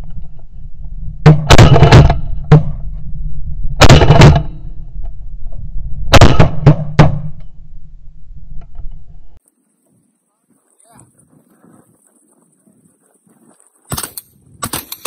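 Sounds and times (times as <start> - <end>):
low wind rumble: 0.0 - 10.1
shotgun blasts: 1.2 - 2.8, 3.8 - 4.7, 6.1 - 7.4.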